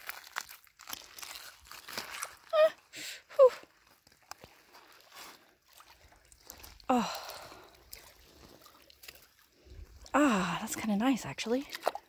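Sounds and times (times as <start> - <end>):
water splashing and lapping: 0.0 - 12.0
woman gasping: 6.9 - 7.8.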